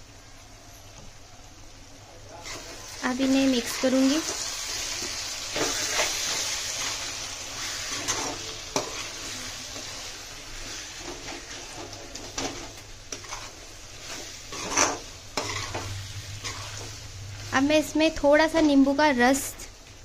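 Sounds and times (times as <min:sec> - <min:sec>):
frying sizzle: 0:00.0 - 0:20.0
metal spatula scraping a pan: 0:02.4 - 0:17.8.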